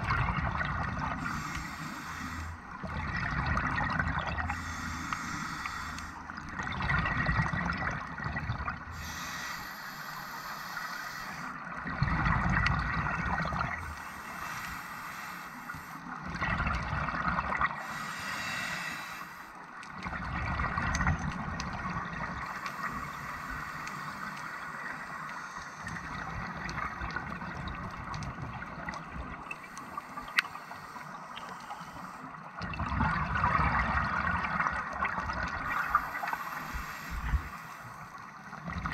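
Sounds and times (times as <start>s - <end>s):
gurgling exhaled bubbles: 0.0s - 1.6s, 2.8s - 4.8s, 6.4s - 9.0s, 11.8s - 13.9s, 16.2s - 17.9s, 20.0s - 23.1s, 32.5s - 37.6s, 38.6s - 38.9s
diver breathing through regulator: 1.2s - 2.7s, 4.4s - 6.5s, 8.9s - 11.8s, 13.8s - 16.2s, 17.8s - 19.6s, 22.4s - 26.7s, 29.5s - 32.4s, 35.6s - 38.6s.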